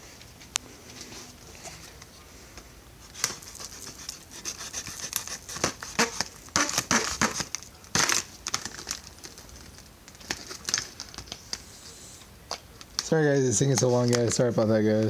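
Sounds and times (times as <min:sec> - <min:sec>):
plastic package crinkling: 0:03.1 - 0:11.6.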